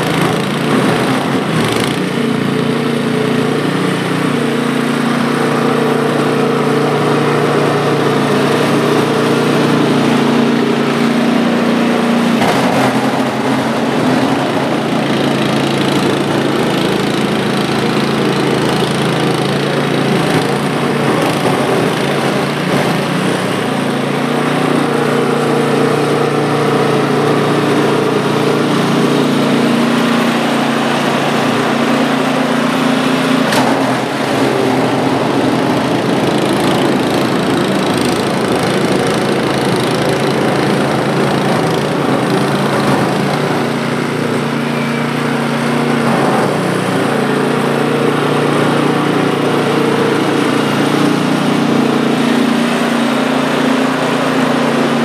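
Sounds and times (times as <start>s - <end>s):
snowblower engine running: 0.0s - 55.0s.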